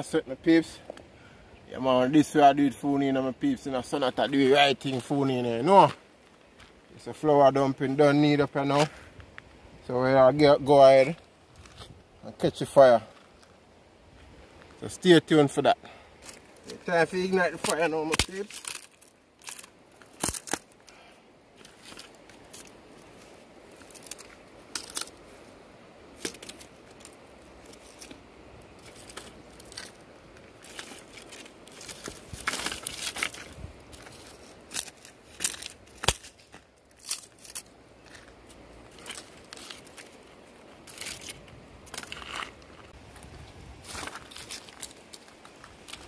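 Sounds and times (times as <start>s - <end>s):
dry kindling snapping and crackling: 16.2s - 25.3s, 26.1s - 46.0s.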